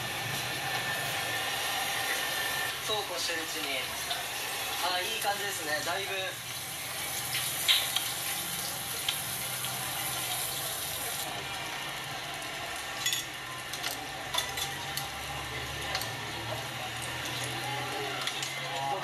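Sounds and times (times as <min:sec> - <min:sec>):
soup hissing on gas burner: 0:00.0 - 0:13.4
metal tongs clinking on tray: 0:13.0 - 0:15.1.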